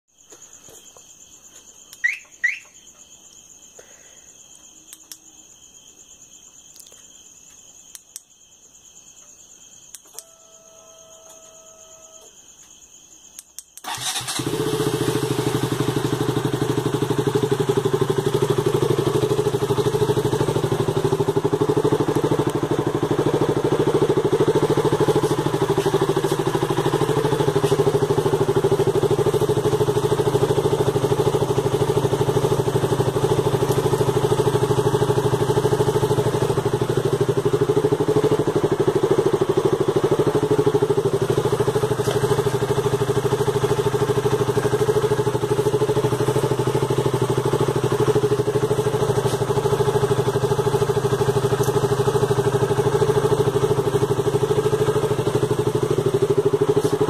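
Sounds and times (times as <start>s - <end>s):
crickets chirping: 0.1s - 57.0s
motorcycle engine starting and idling: 13.8s - 57.0s.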